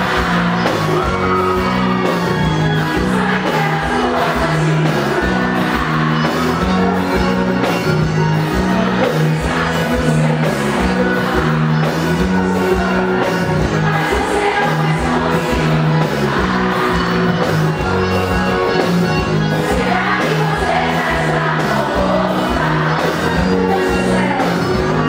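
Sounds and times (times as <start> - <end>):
bass line: 0.0 - 25.0
live band playing: 0.0 - 25.0
person singing: 19.5 - 25.0.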